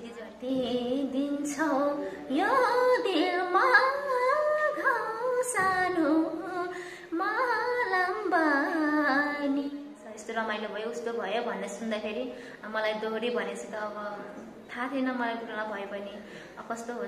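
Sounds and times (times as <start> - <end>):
woman singing folk melody: 0.0 - 9.8
singer breathing: 2.0 - 2.3, 6.7 - 7.2, 12.3 - 12.6, 16.2 - 16.6.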